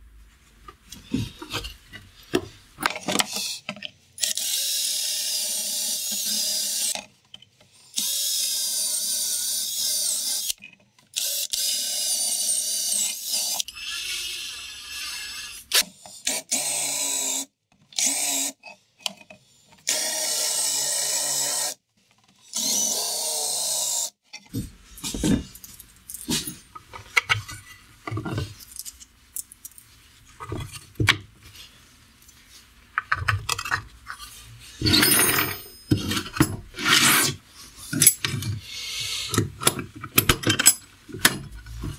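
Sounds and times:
board and bolts clattering: 34.8 - 36.7.

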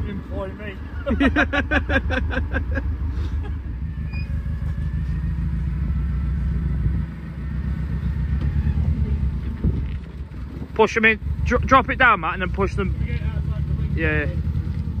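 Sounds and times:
engine rumbling: 0.0 - 15.0
rapid laughter: 0.8 - 3.6.

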